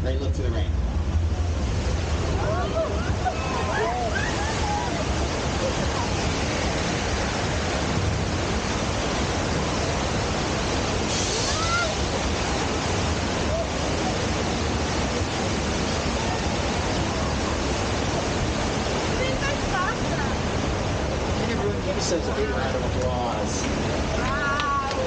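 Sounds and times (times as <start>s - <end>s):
water rushing roar: 0.0s - 25.0s
bright water hiss: 4.1s - 17.6s.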